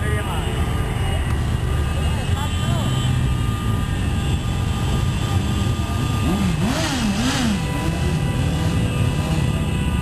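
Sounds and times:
motorcycle engines running: 1.1s - 10.0s
motorcycle engine revving: 4.6s - 9.9s.

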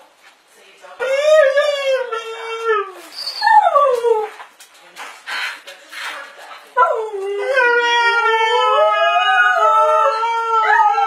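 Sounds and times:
dog howling: 6.9s - 11.0s.

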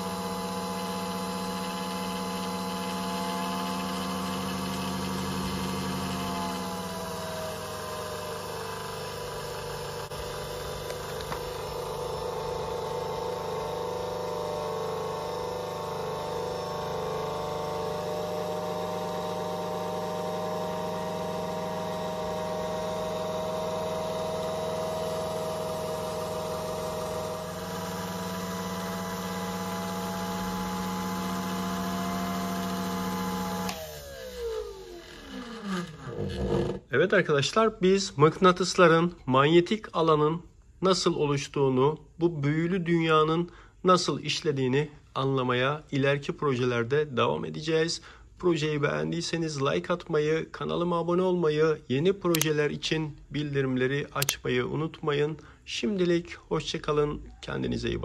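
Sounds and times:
small electric motor humming: 0.0s - 36.8s.

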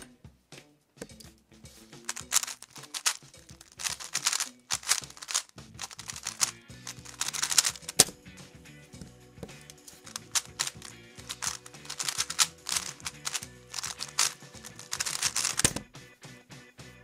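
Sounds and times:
background music: 0.0s - 17.0s
puzzle cube plastic clacking: 2.0s - 8.2s, 9.4s - 15.8s.

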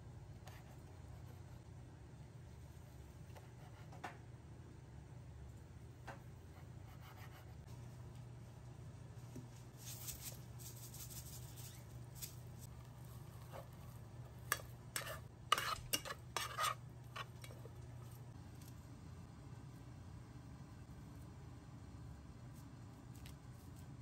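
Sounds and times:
low steady hum: 0.0s - 24.0s
rice rustling: 9.5s - 14.5s
utensil scraping a pot: 13.0s - 17.6s.

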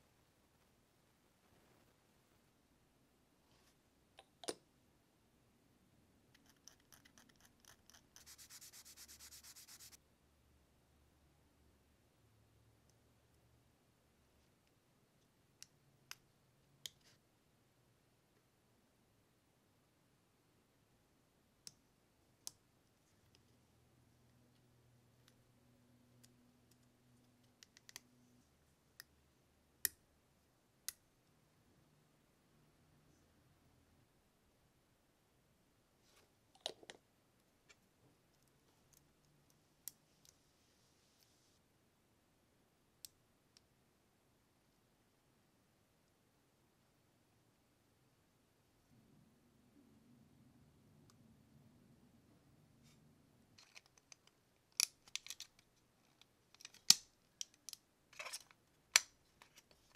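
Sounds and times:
fast even rubbing: 8.0s - 10.0s
small plastic parts clicking: 53.6s - 59.6s.

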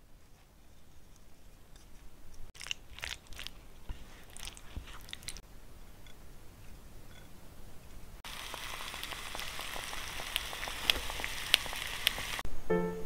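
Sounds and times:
food sizzling in a glass dish: 8.2s - 12.4s
music: 12.5s - 13.0s.

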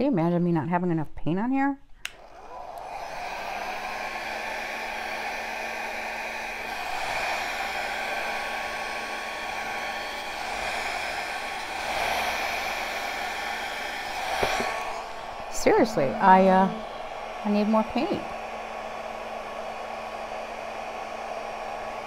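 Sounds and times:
hair dryer blowing: 2.0s - 22.0s.

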